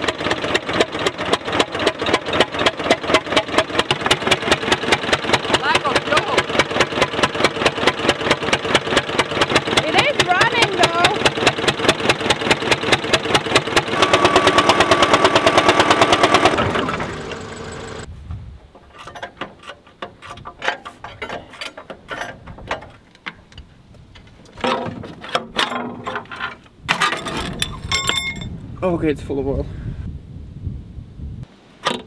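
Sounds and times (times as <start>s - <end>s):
diesel tractor engine running: 0.0s - 18.1s.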